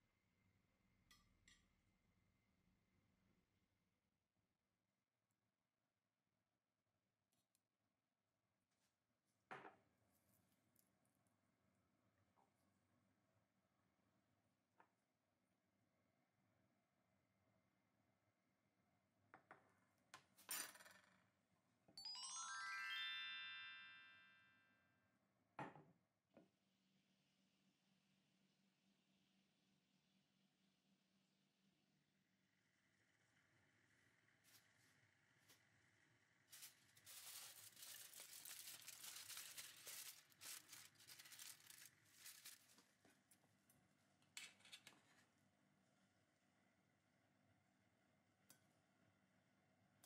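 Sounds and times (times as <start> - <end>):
bright shimmer: 22.0 - 24.3
descending sparkle chimes: 22.0 - 24.5
aluminium foil crinkling: 36.5 - 42.9.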